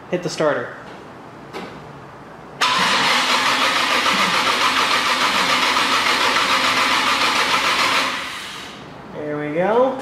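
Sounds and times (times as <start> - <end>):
engine cranking on starter: 2.6 - 8.8.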